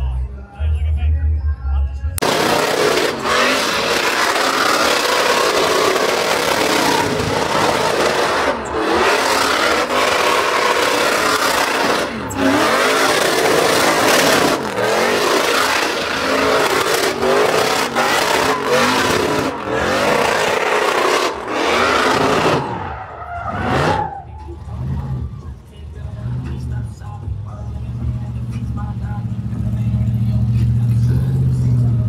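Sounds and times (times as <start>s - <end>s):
engine revving hard: 2.2s - 24.1s
tyres screeching: 2.2s - 25.5s.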